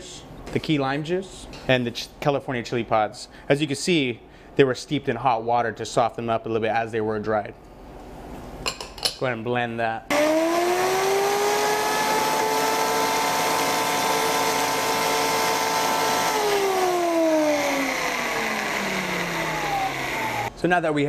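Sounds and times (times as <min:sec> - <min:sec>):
blender motor whining: 0:10.1 - 0:20.5.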